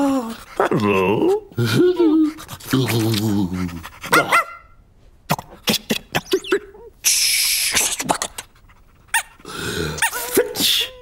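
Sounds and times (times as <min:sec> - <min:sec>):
cartoon dog noises: 0:00.0 - 0:04.7, 0:05.3 - 0:11.0
loud sneeze-like burst: 0:07.0 - 0:08.4.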